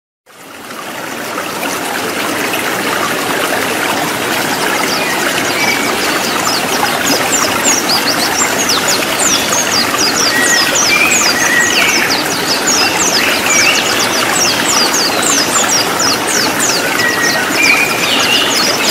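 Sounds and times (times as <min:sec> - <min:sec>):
stream water running: 0:00.3 - 0:18.9
birds chirping rapidly: 0:03.8 - 0:18.9.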